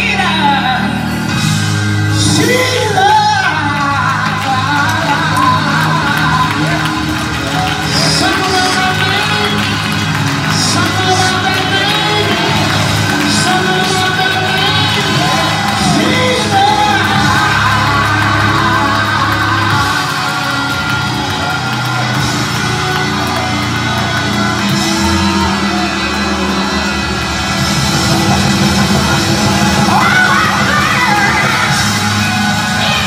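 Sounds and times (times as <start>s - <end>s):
woman singing gospel song: 2.2s - 7.1s, 7.9s - 21.2s
congregation yelling and shouting: 2.2s - 33.0s.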